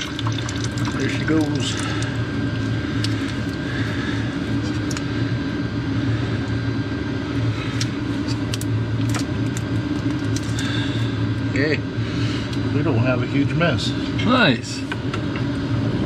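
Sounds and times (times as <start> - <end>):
coolant draining from hose: 0.0 - 5.1, 7.8 - 11.7
low mechanical hum: 0.0 - 16.0.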